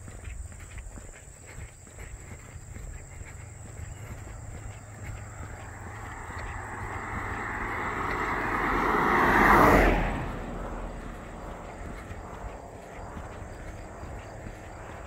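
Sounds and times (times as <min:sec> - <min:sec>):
car driving past: 0:03.5 - 0:15.0.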